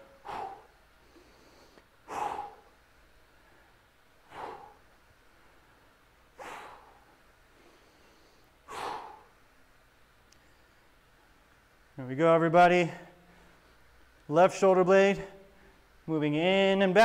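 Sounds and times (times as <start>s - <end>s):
man exhaling sharply: 0.0s - 0.8s, 2.1s - 2.7s, 4.3s - 4.9s.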